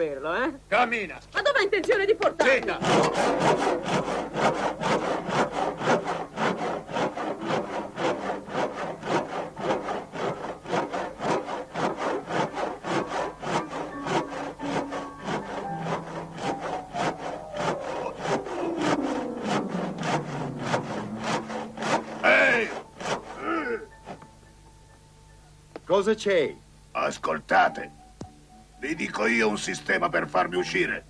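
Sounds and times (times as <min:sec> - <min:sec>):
hand drill rasping into wood: 0:02.4 - 0:24.3
low tone sliding down: 0:17.0 - 0:22.8.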